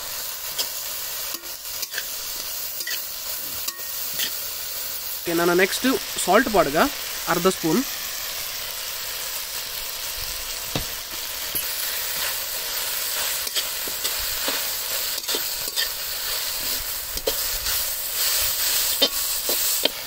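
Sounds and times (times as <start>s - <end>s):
vegetables sizzling in a pan: 0.0s - 20.0s
metal spatula scraping pan: 13.1s - 20.0s.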